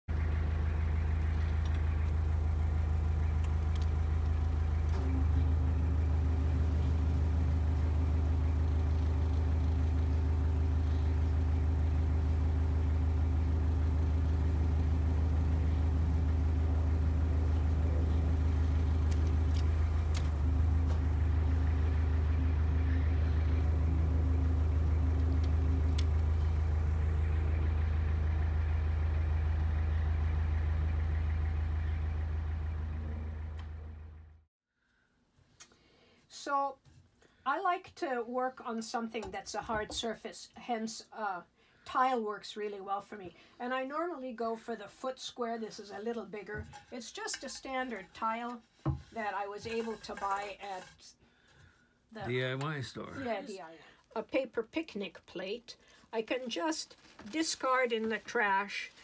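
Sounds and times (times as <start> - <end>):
engine idling: 0.0 - 34.5.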